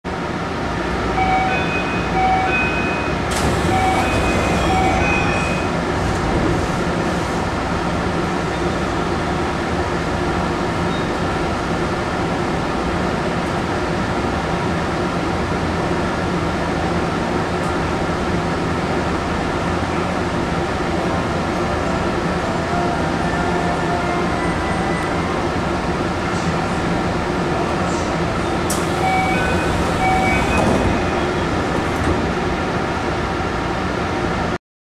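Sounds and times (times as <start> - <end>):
stopped train humming: 0.1 - 34.6
train door chime: 1.2 - 5.8, 21.8 - 25.6, 28.7 - 31.5
doors hissing open: 3.3 - 4.9, 28.7 - 31.6.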